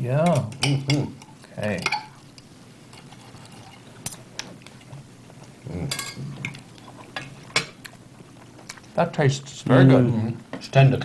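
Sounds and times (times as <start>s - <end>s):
cutlery clinking on plates: 5.9s - 6.6s.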